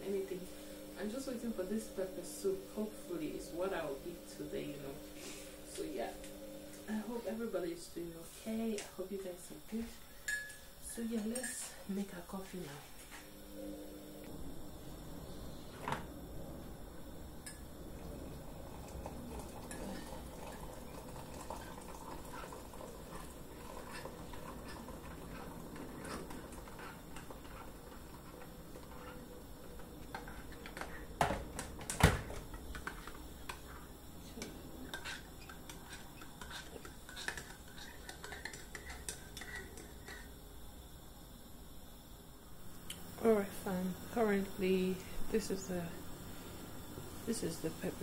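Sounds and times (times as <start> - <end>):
water pouring into mug: 17.9 - 28.9.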